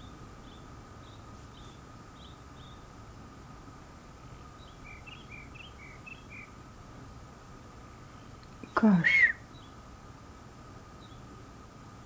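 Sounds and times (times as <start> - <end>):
bird chirping: 0.0 - 2.9, 4.3 - 6.6, 8.1 - 9.8, 11.0 - 11.3
faint steady hum: 0.0 - 12.0.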